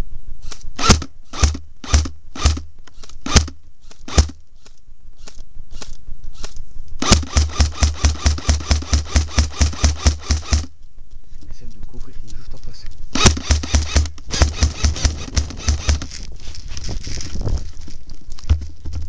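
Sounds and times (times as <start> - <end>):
airsoft gun shots: 0.8 - 4.4, 6.4 - 10.7, 13.1 - 16.1.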